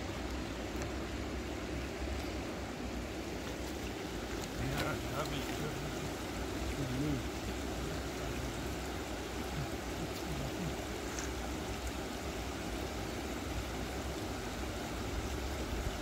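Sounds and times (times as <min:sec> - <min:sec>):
water rushing through a spillway: 0:00.0 - 0:16.0.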